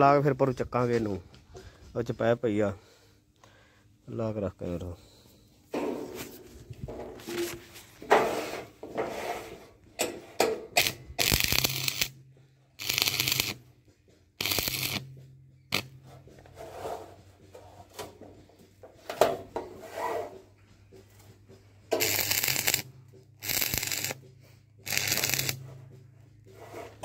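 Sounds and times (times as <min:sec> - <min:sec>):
electrode knocks and scrapes: 0:05.7 - 0:12.1, 0:26.5 - 0:27.0
arc welding bursts: 0:10.8 - 0:12.2, 0:12.8 - 0:13.6, 0:14.4 - 0:15.0, 0:22.0 - 0:24.2, 0:24.8 - 0:25.6
welding machine low hum: 0:10.8 - 0:12.2, 0:12.8 - 0:13.6, 0:14.4 - 0:15.1, 0:22.0 - 0:24.2, 0:24.8 - 0:25.6.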